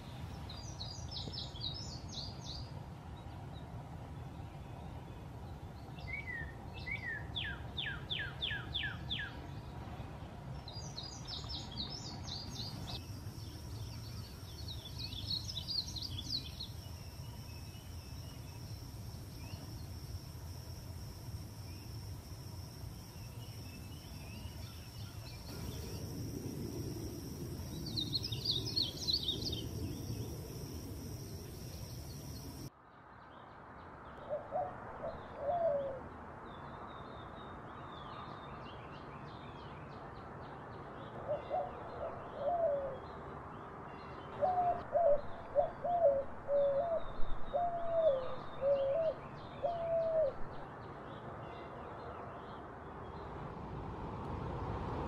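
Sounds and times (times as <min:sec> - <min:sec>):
small birds chirping faintly: 0:00.0 - 0:53.8
high insect trill: 0:12.3 - 0:32.7.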